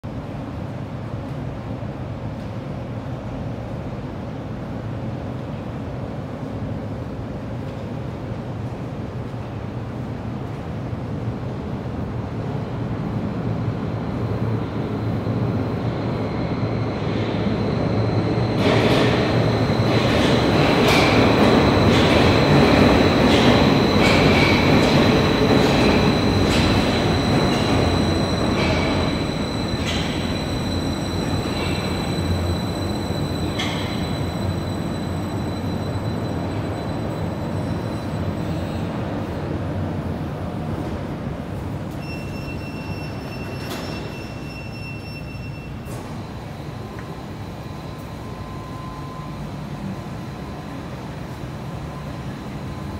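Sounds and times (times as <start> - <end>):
train wheels rumbling: 13.7 - 42.1.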